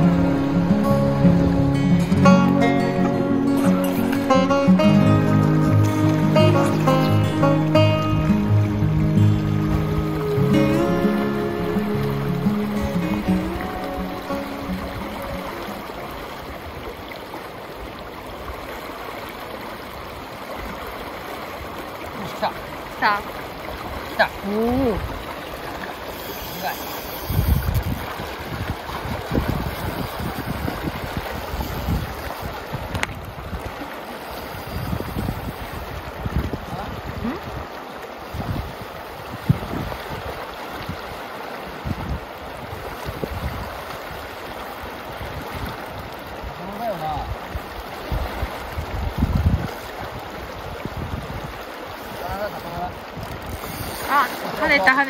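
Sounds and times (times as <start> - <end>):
fast-flowing river rushing: 0.0 - 55.0
wind buffeting microphone: 27.1 - 41.2, 41.8 - 54.0.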